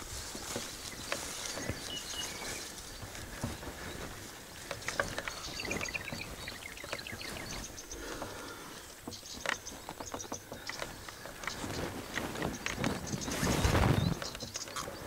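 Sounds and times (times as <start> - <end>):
people rustling on grass: 0.0 - 15.0.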